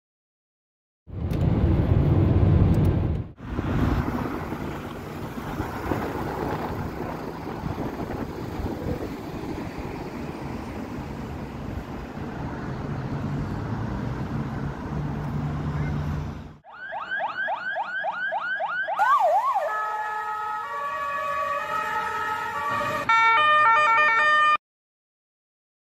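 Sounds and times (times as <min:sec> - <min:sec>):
wind noise: 0:01.1 - 0:15.9
motorway traffic: 0:01.1 - 0:24.6
electronic siren: 0:16.6 - 0:24.6.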